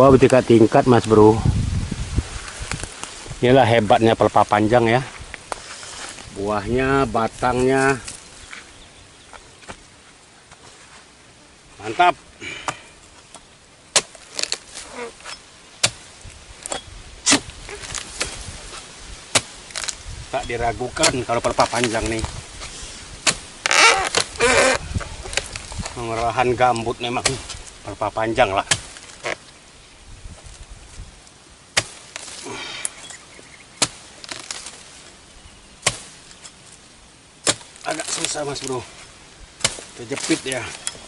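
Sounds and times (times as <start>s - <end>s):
sickle knocking against fronds: 12.5s - 29.6s, 31.7s - 35.2s, 35.8s - 41.0s
chisel striking palm stalks: 12.6s - 20.0s, 20.6s - 27.8s, 28.4s - 29.5s, 31.7s - 33.2s, 33.8s - 35.0s, 35.8s - 36.8s, 37.4s - 41.0s.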